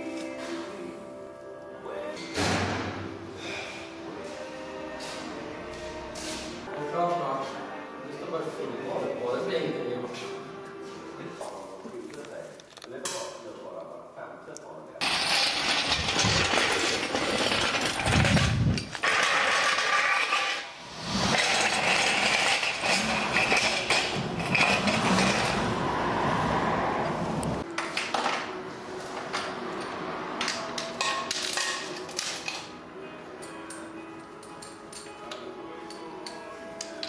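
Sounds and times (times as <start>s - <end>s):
metal tools and chain clanking: 15.0s - 20.7s, 21.3s - 25.6s.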